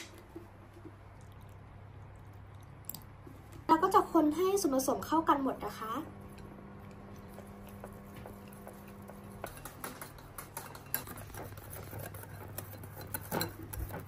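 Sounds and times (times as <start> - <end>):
faint steady hum: 0.0 - 14.0
whisk stirring liquid: 5.6 - 14.0.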